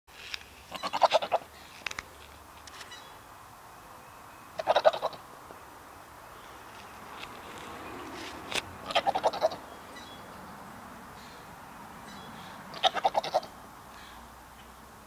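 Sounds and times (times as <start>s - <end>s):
goat bleating: 0.7s - 1.5s, 4.6s - 5.2s, 8.8s - 9.6s, 12.7s - 13.5s.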